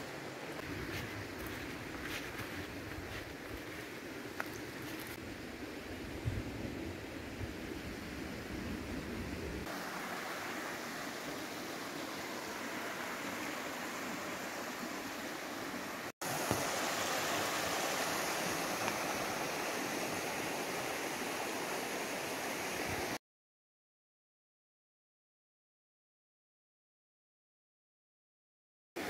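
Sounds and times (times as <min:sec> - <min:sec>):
stream rushing over rocks: 0:00.0 - 0:05.2, 0:09.6 - 0:23.2.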